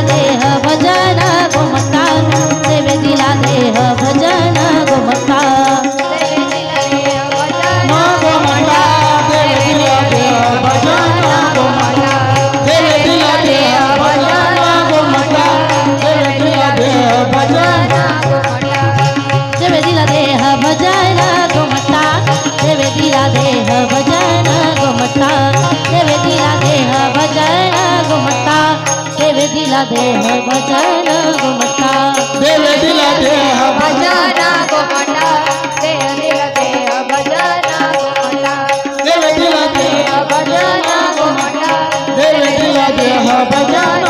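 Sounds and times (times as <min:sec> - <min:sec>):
held drone: 0:00.0 - 0:36.7
woman singing: 0:00.0 - 0:44.0
hand drum playing: 0:07.6 - 0:28.7.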